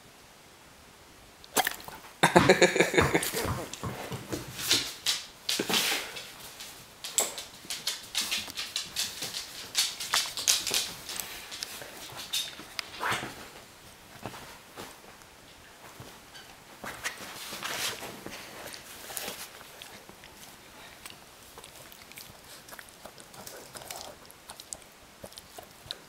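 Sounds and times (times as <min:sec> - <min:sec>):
dog claws on wooden floor: 0:03.0 - 0:13.4.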